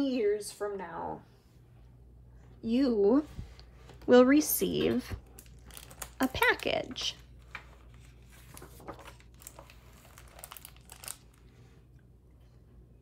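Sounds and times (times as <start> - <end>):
steady low hum: 0.0 - 13.0
book page rustling: 4.9 - 11.5.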